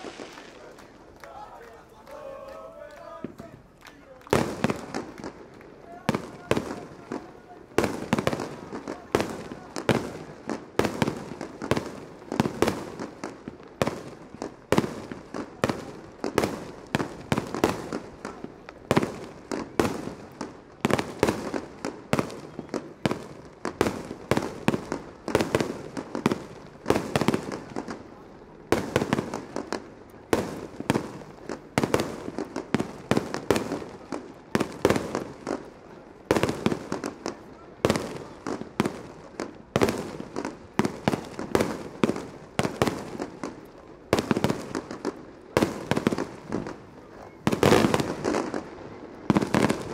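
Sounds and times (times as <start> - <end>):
firework shells bursting: 0.0 - 1.2.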